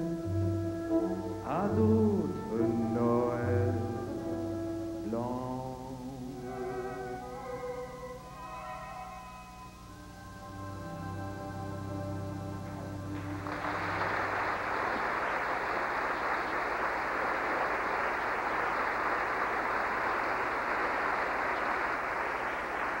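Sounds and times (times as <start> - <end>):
orchestra chord: 0.0 - 14.8
audience applause: 12.7 - 23.0.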